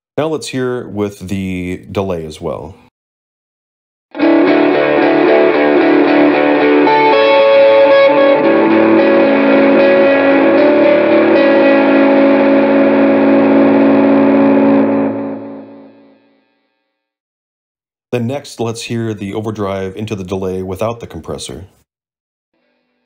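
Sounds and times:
overdriven electric guitar: 4.1s - 16.5s.

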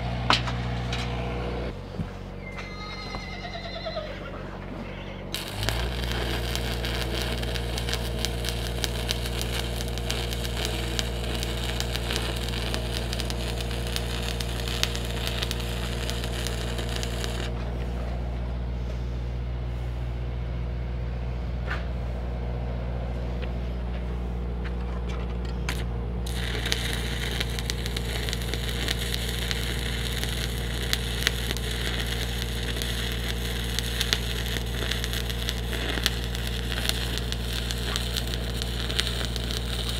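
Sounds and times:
welding generator engine hum: 0.0s - 2.5s, 3.1s - 39.9s
welding arc crackling: 5.3s - 17.6s, 25.7s - 39.9s.

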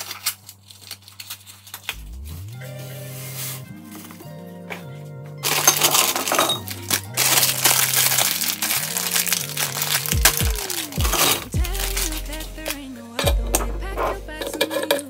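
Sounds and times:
plastic packet crinkling: 0.0s - 2.2s, 5.4s - 12.8s
music with beat and deep bass: 1.9s - 15.0s
stock cubes rattling into glass jar: 5.4s - 12.2s.

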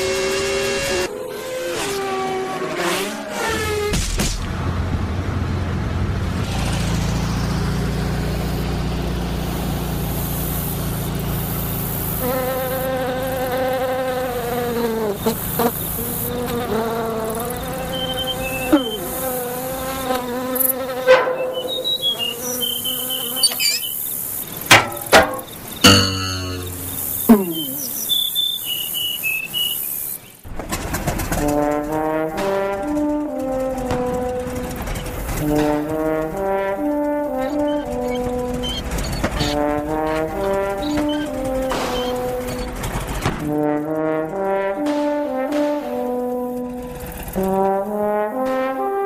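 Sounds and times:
cartoon insects buzzing: 9.4s - 30.2s, 35.4s - 42.8s.

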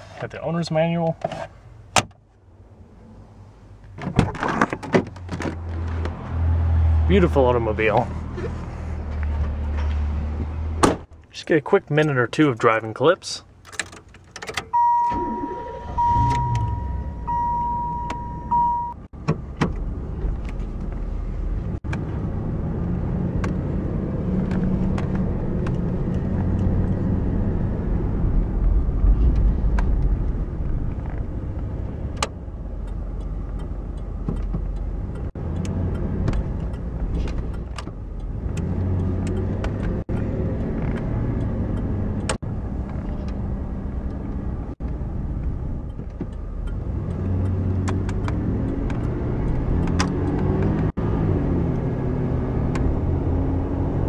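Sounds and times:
car engine and road noise: 0.0s - 54.0s
car engine starting: 13.6s - 54.0s
dashboard warning chime: 14.7s - 19.1s.

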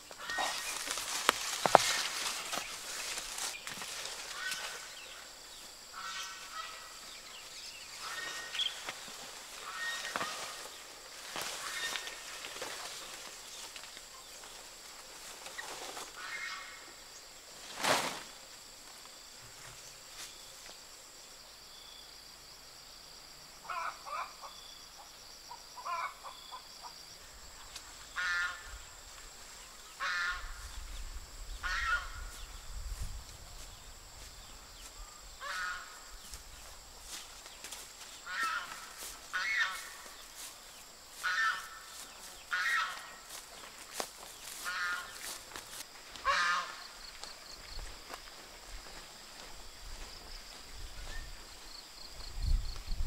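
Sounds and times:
poultry calling: 0.2s - 5.3s, 5.9s - 12.8s, 23.6s - 24.6s, 25.8s - 27.0s, 28.1s - 28.8s, 29.8s - 30.8s, 31.5s - 32.6s, 35.1s - 36.3s, 38.1s - 40.5s, 41.1s - 43.7s, 44.4s - 45.5s, 46.1s - 47.0s.

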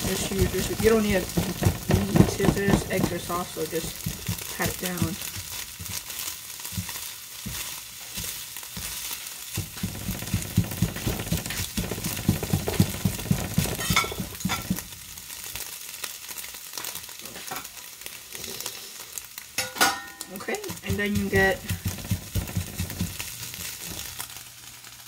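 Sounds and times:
spatula scraping a pan: 0.0s - 14.9s
eggs sizzling in a frying pan: 0.0s - 25.0s.

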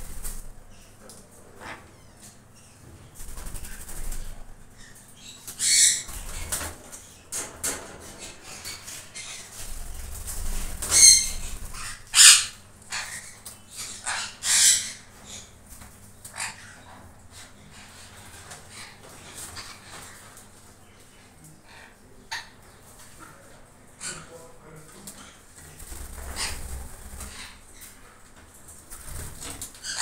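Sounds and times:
wings flapping: 0.0s - 0.6s, 3.2s - 4.5s, 5.5s - 6.9s, 9.5s - 12.0s, 25.6s - 27.6s, 28.9s - 29.9s
parrots screeching: 4.8s - 6.7s, 8.2s - 15.6s, 16.3s - 17.8s, 26.1s - 27.6s, 29.8s - 30.0s.

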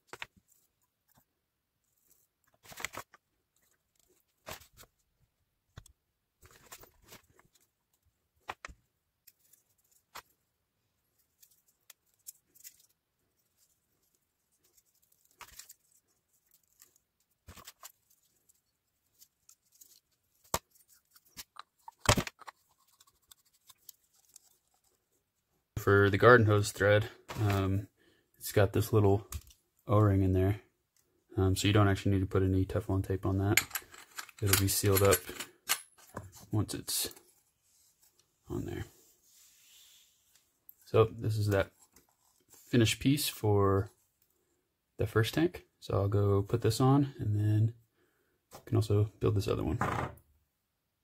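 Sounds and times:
fitting being threaded: 11.1s - 25.4s.

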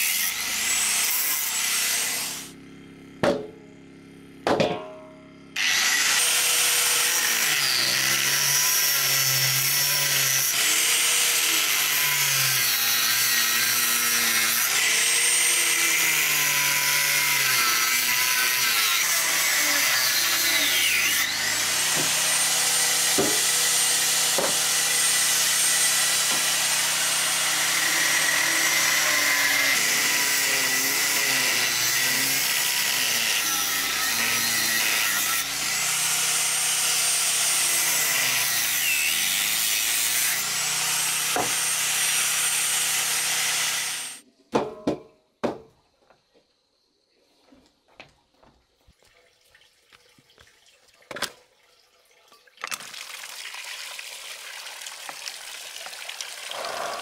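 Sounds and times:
angle grinder cutting bone: 0.0s - 2.6s, 5.6s - 44.2s, 56.5s - 57.0s
sharp knocks: 3.2s - 3.6s, 4.4s - 5.1s, 23.1s - 23.5s, 24.3s - 24.6s.

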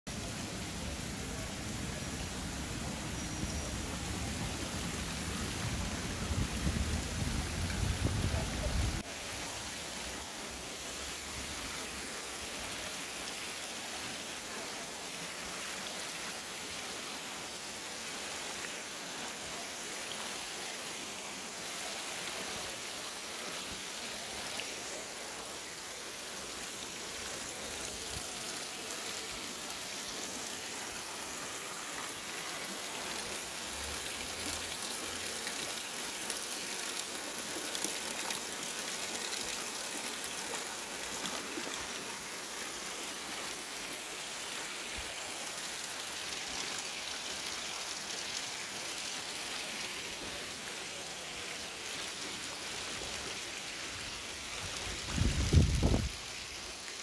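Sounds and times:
fountain water splashing into pond: 0.1s - 57.0s.

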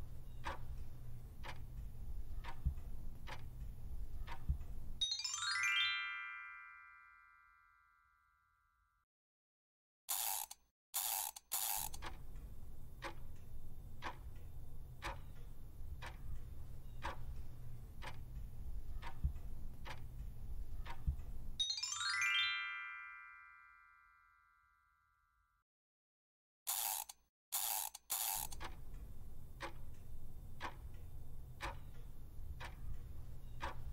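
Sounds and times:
clock ticking: 0.0s - 5.0s, 11.0s - 21.6s, 27.6s - 33.9s
rising chime: 5.0s - 8.2s, 21.6s - 24.8s.

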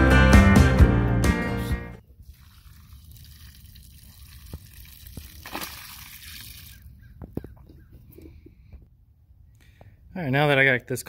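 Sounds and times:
water splashing onto grass: 2.2s - 6.9s.

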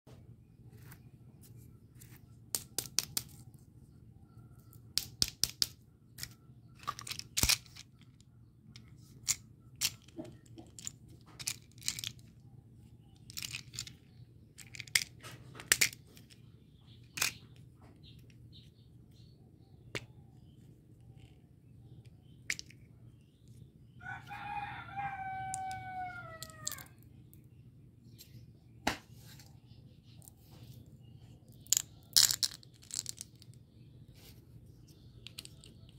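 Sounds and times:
rooster crowing: 24.0s - 26.9s.

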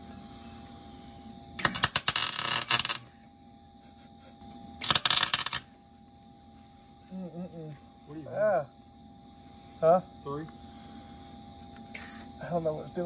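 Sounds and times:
welding arc crackling: 1.6s - 3.0s, 4.8s - 5.6s.

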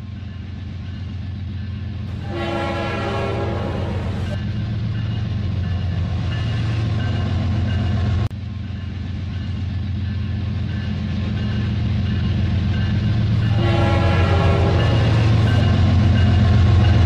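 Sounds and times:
train horn: 2.1s - 4.4s, 13.4s - 15.7s.

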